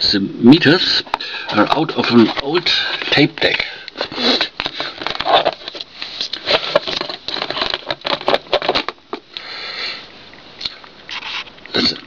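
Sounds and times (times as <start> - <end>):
handling noise clicks and rustles: 1.0 - 9.3.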